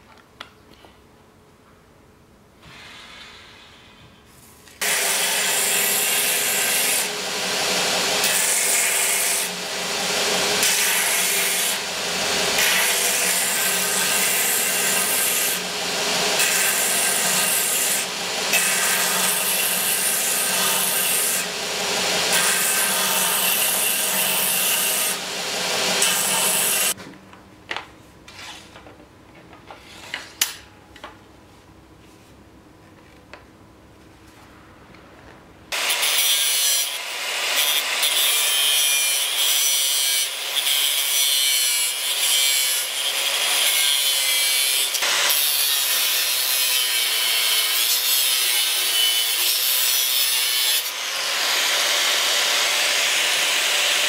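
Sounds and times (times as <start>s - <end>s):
belt grinder grinding metal: 4.8s - 27.0s, 35.8s - 54.0s.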